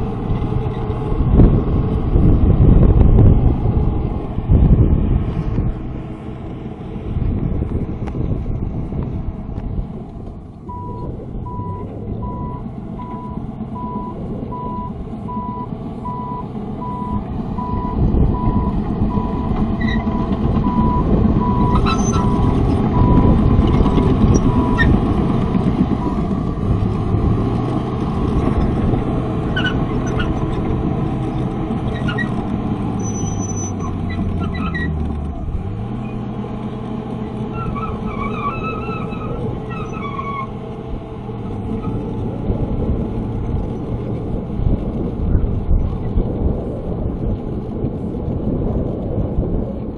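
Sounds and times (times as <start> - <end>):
bulldozer diesel engine running: 0.0 - 49.9
reversing alarm beeping: 10.7 - 23.4.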